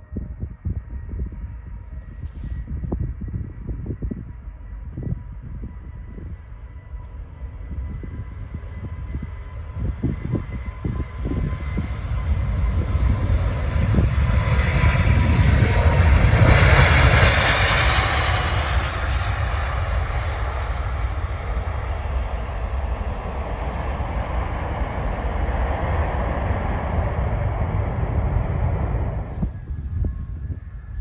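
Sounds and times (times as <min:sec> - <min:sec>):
jet airliner taking off: 0:00.0 - 0:31.0
high fan whine: 0:22.1 - 0:31.0.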